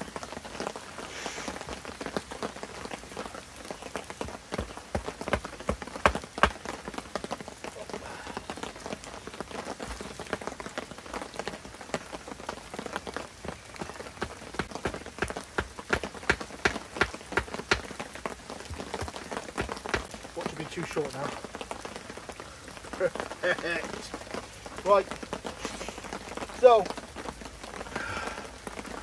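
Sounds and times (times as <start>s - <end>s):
stakes being hammered: 14.6s - 17.9s.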